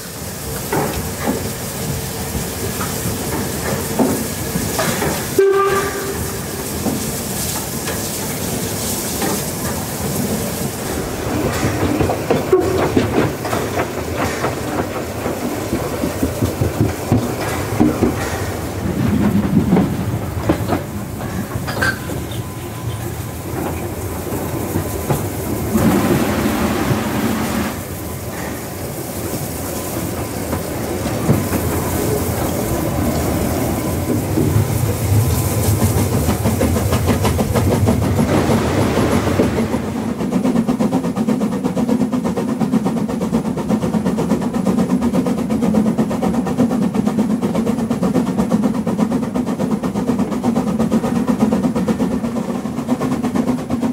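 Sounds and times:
steam hiss: 0.0s - 53.9s
train rumble: 0.0s - 53.9s
wheels clicking over rail joints: 0.5s - 26.4s, 28.2s - 38.5s.

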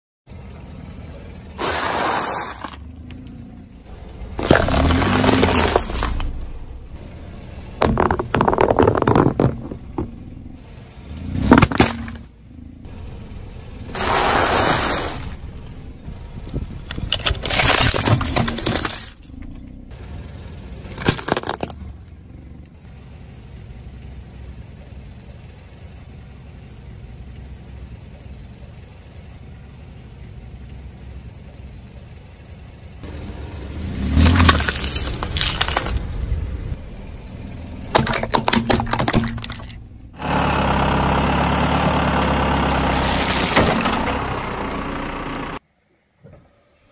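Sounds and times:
tyre crushing objects: 1.6s - 2.9s, 4.3s - 10.5s, 11.3s - 12.3s, 13.9s - 15.4s, 16.6s - 19.6s, 20.9s - 21.8s, 34.0s - 36.7s, 37.7s - 39.8s.

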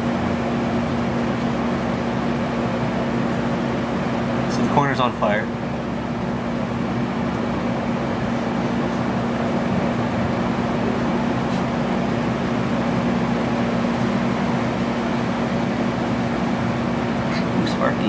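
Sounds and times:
microwave electrical hum: 0.0s - 18.0s
microwave fan whirring: 0.0s - 18.0s.

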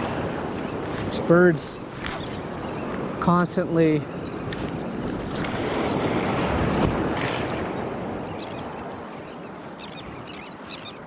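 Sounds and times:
ocean surf washing in: 0.0s - 10.8s.

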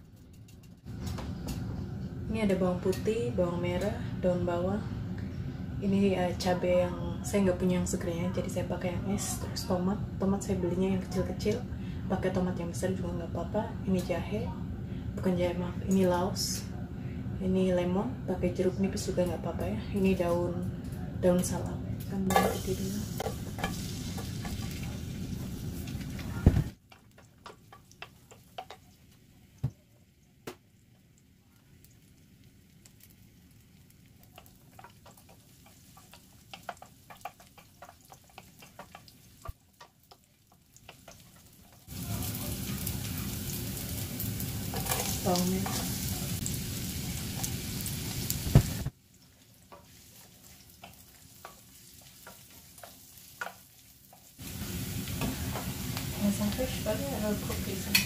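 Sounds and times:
garlic sizzling in oil: 22.0s - 58.0s.

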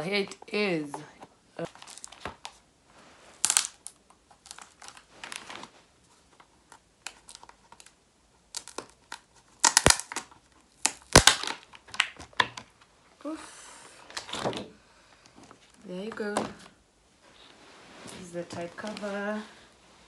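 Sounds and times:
packaging rustling and crinkling: 1.6s - 2.6s, 3.3s - 12.4s.

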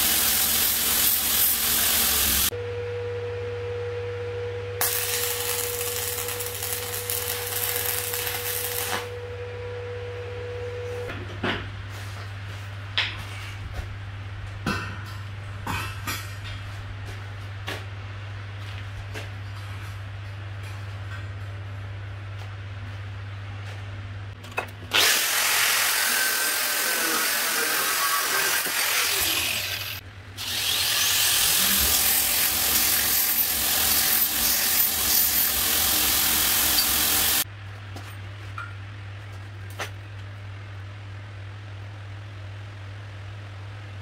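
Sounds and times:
steady low hum: 2.5s - 24.9s
belt grinder whining: 24.9s - 37.4s.

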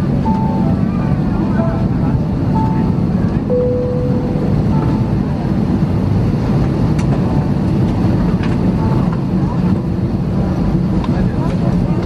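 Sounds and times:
aircraft cabin rumble: 0.0s - 12.0s
faint short tone: 3.5s - 5.1s.

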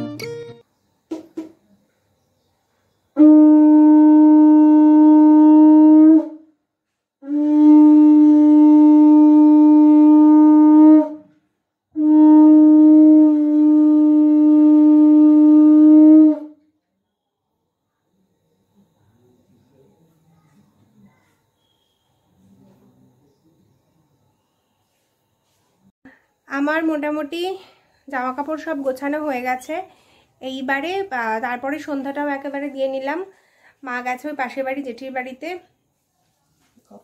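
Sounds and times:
conch shell blasts: 12.0s - 16.6s.

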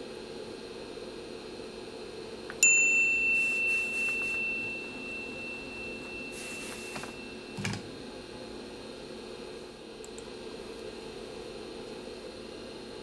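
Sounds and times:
steady background hiss: 0.7s - 13.0s
bell-like chime ringing: 2.6s - 7.6s.

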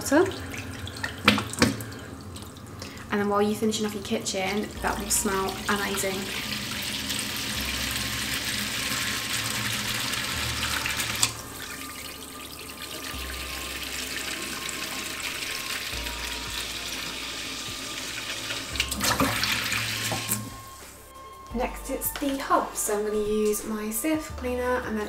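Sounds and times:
tap water splashing into sink: 0.3s - 2.5s, 18.2s - 20.5s.

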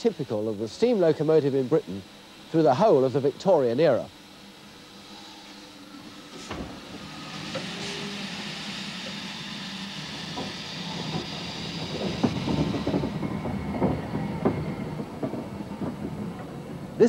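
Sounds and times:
steam hissing: 0.0s - 17.0s
locomotive wheels clanking: 10.0s - 17.0s.

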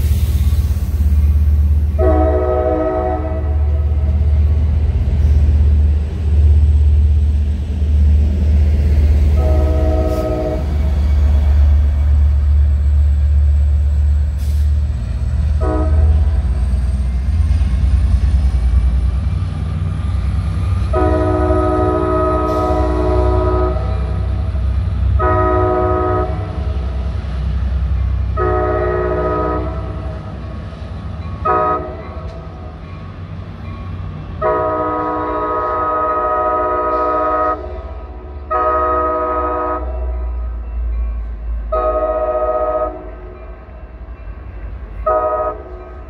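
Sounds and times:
locomotive engine rumbling: 0.0s - 46.0s
multi-tone train horn: 1.9s - 4.3s, 9.2s - 10.9s, 15.5s - 16.6s, 20.8s - 27.0s, 28.2s - 30.4s, 31.4s - 32.7s, 34.4s - 40.6s, 41.6s - 43.8s, 45.0s - 46.0s.

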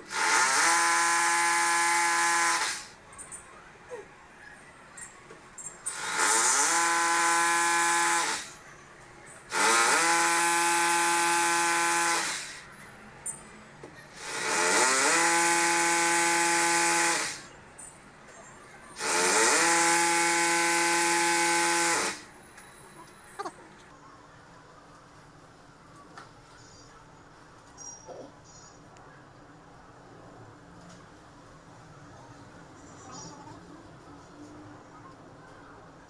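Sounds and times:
hissy cutting noise: 0.0s - 3.0s, 5.8s - 8.6s, 9.5s - 12.7s, 14.1s - 17.6s, 19.0s - 22.3s
electric drill whining: 0.1s - 2.9s, 5.9s - 8.6s, 9.5s - 12.6s, 14.2s - 17.5s, 19.0s - 22.3s.

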